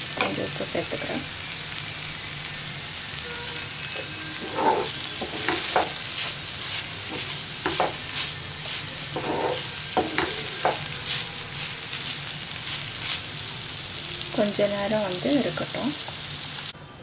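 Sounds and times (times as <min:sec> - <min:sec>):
low frying sizzle: 0:00.0 - 0:17.0
wooden spatula scraping rice: 0:04.4 - 0:13.4.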